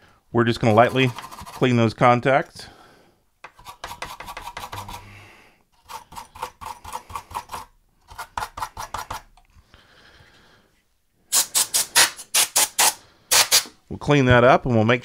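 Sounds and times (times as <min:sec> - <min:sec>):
brush scrubbing metal contacts: 0:00.6 - 0:01.8, 0:03.5 - 0:05.1.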